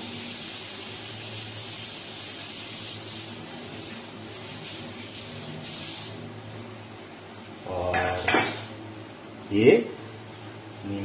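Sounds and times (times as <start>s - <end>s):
steady hiss: 0.0s - 6.4s.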